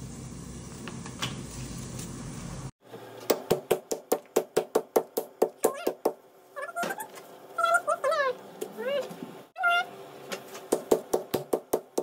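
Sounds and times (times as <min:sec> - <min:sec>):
meat mallet pounding meat on board: 0:03.3 - 0:06.2, 0:10.7 - 0:12.0.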